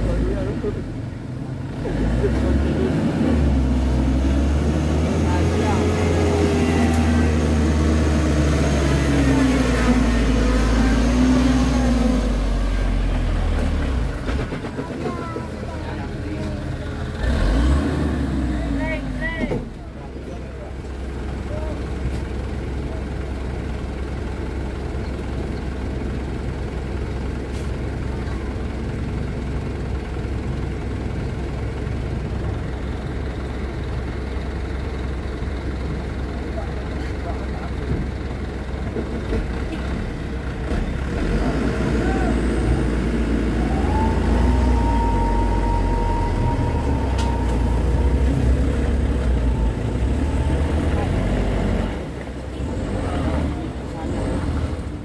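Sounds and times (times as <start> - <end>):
diesel truck engine revving hard: 1.7 - 14.1, 17.0 - 19.2, 40.7 - 55.0.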